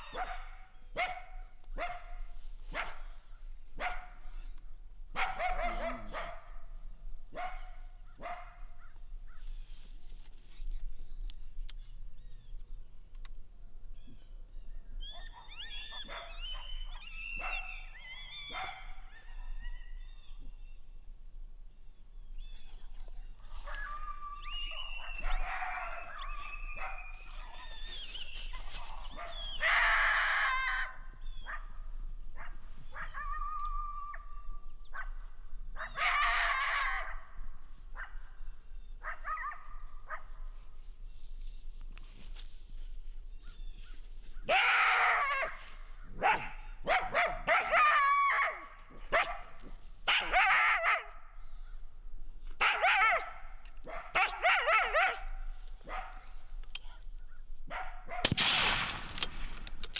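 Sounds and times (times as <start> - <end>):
dogs barking and yipping: 0.0 - 3.1, 5.2 - 6.5, 15.1 - 19.8, 23.6 - 30.0, 44.5 - 51.2, 52.6 - 56.3, 57.7 - 58.3.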